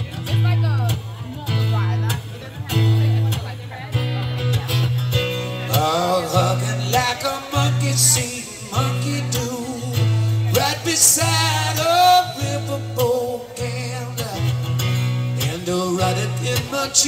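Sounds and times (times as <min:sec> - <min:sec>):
acoustic guitar strumming: 0:00.0 - 0:17.0
man singing: 0:05.3 - 0:17.0.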